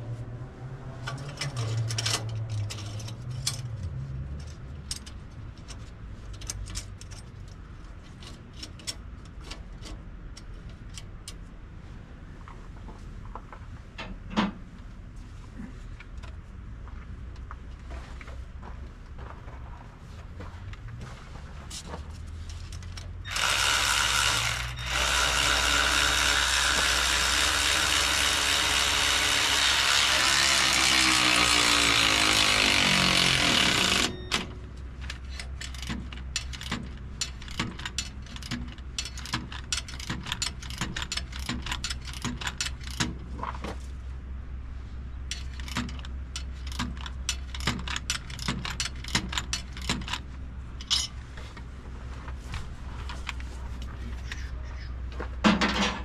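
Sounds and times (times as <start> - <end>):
loud steady mechanical noise: 23.2 - 56.0
hand ratchet clicking: 35.0 - 43.1, 45.3 - 50.2.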